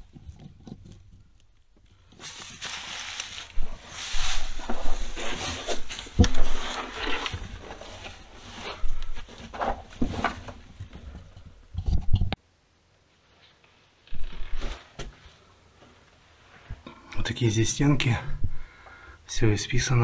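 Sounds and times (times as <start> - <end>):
footsteps rustling on dry leaves: 2.2 - 6.7.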